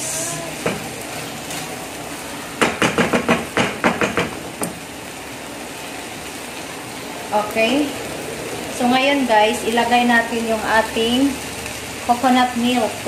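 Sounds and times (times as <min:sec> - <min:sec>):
chicken sizzling in frying pan: 0:00.0 - 0:13.0
spatula knocking against pan: 0:02.6 - 0:04.8.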